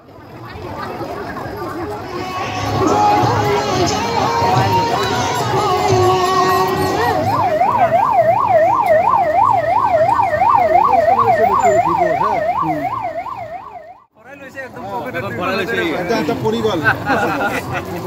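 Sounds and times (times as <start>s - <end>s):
electronic siren yelping: 4.6s - 14.1s.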